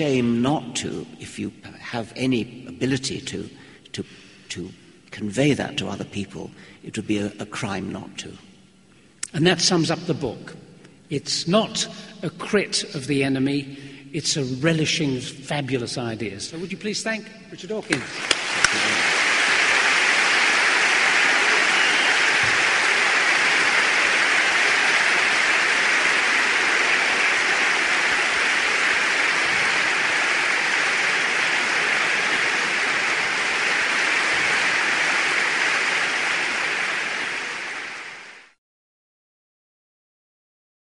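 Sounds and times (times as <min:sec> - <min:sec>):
audience applauding: 0:17.9 - 0:38.6.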